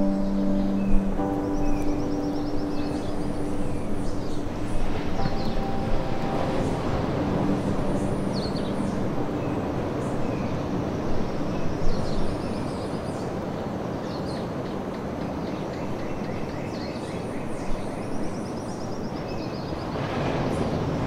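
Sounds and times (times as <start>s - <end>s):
birds chirping and trilling: 0.0s - 21.0s
ocean surf on pebble beach: 4.0s - 11.9s, 19.8s - 21.0s.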